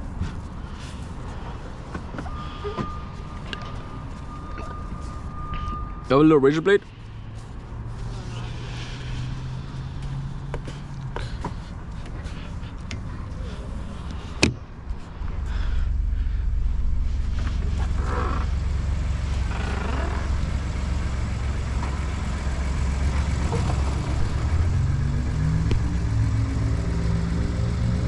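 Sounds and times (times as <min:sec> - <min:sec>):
truck engine running: 0:00.0 - 0:28.0.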